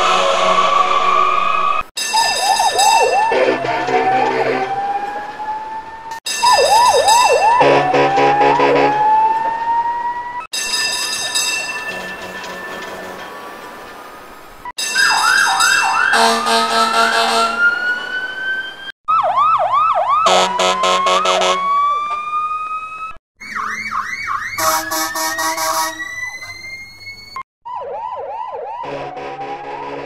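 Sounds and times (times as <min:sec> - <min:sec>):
electronic police siren: 0:00.4 - 0:10.5, 0:14.9 - 0:30.0
horn blast: 0:16.1 - 0:17.7, 0:24.6 - 0:26.0, 0:28.8 - 0:30.0.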